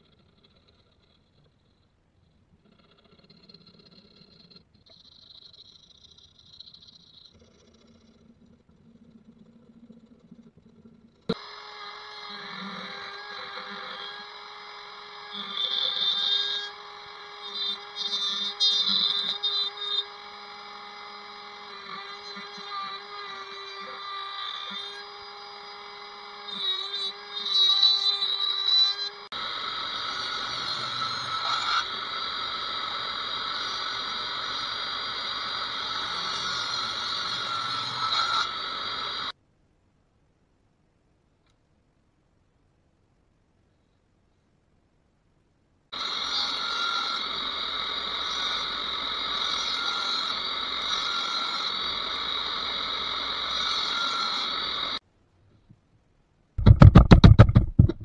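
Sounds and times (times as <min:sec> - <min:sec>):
router bit cutting wood: 0:11.3 - 0:39.3, 0:46.0 - 0:55.0
router whining: 0:11.3 - 0:39.3, 0:45.9 - 0:55.0.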